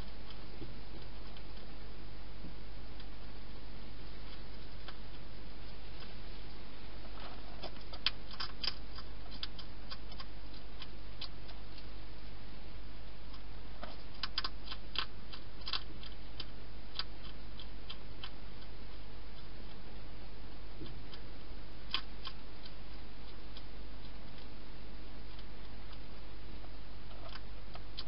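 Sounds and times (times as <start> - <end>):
steady hiss and low hum: 0.0 - 28.0
hedgehog crunching dry food: 7.0 - 12.3, 13.1 - 28.0.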